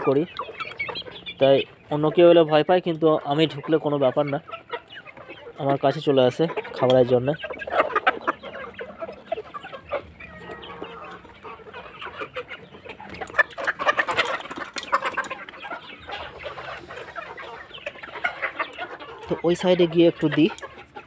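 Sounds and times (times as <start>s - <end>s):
hens clucking: 0.0s - 21.0s.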